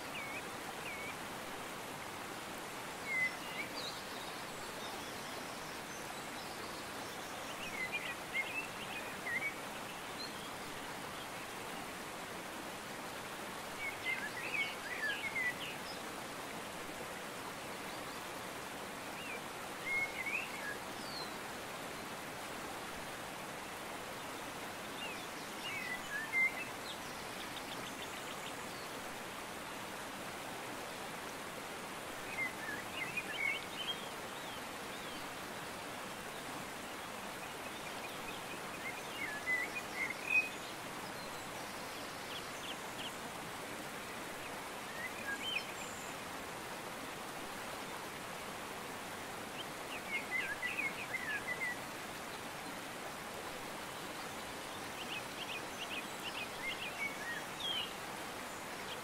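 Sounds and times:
rushing water: 0.0s - 59.0s.

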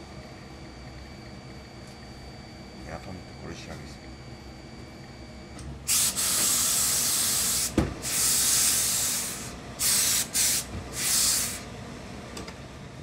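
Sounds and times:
steam iron hissing: 5.9s - 11.6s.

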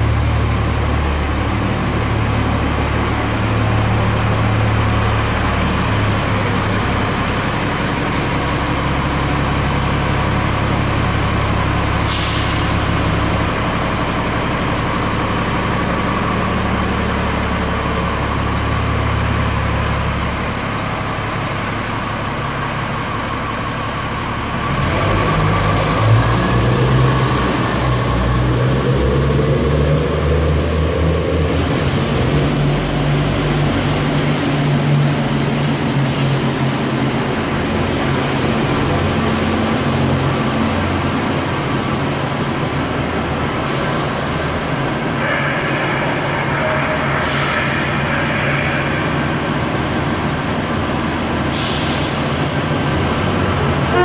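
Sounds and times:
bus engine humming: 0.0s - 54.0s
air brakes hissing: 12.0s - 13.2s, 43.6s - 49.5s, 51.4s - 52.8s.

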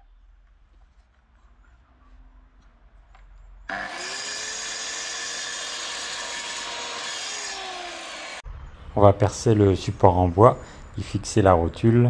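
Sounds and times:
circular saw cutting wood: 3.7s - 8.4s.

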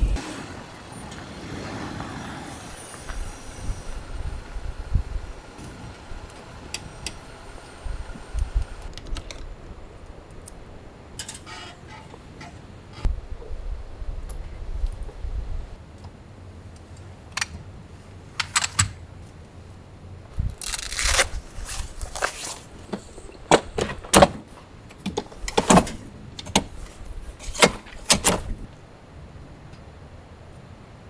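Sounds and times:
ladder scraping and rustling: 11.2s - 13.1s, 20.6s - 28.7s.

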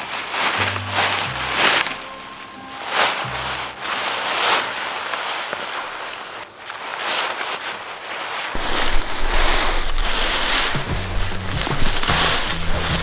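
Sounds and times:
tarp rustling and flapping: 0.0s - 13.0s
wind gusts on microphone: 8.6s - 13.0s.

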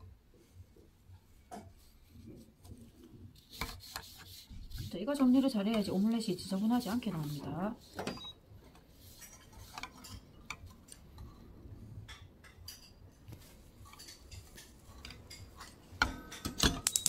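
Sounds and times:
chopsticks scraping frying pan: 3.4s - 8.2s.

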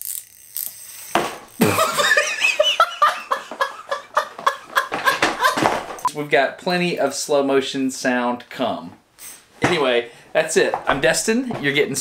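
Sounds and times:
man laughing hard: 1.6s - 6.0s.

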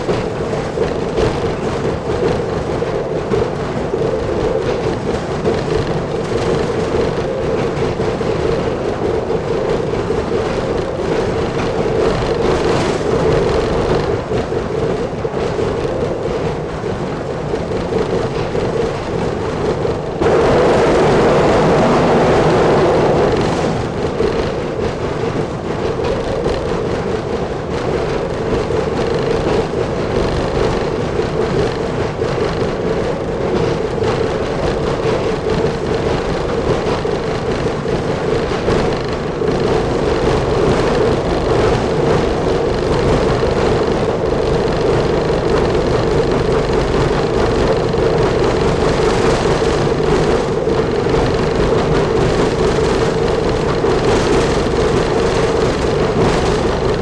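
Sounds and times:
diesel engine running: 0.0s - 57.0s
wheels running on track: 0.0s - 57.0s.

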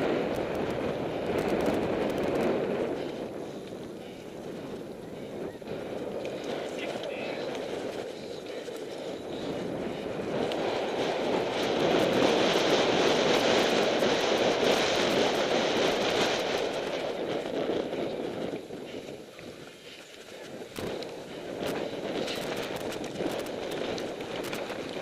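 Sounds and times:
light rattling ticks: 0.0s - 12.7s, 13.3s - 25.0s
bike tyres rumbling on grass: 0.0s - 25.0s.

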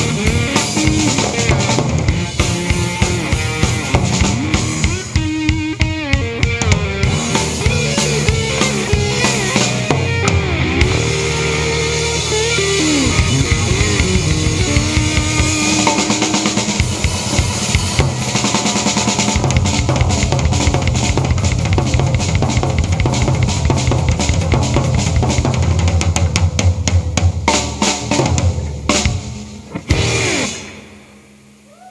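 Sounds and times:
electric guitar sustained notes: 0.0s - 21.5s, 28.0s - 31.9s
fast drum strikes: 0.0s - 31.2s
bass guitar: 0.0s - 31.9s.

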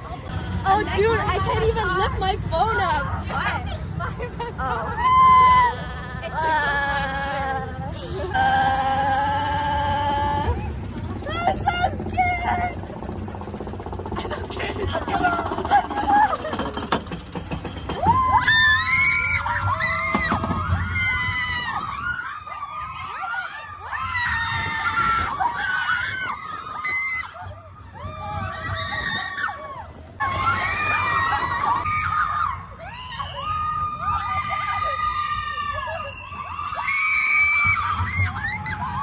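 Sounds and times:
low rumble: 0.0s - 39.0s
riders screaming: 17.9s - 39.0s.

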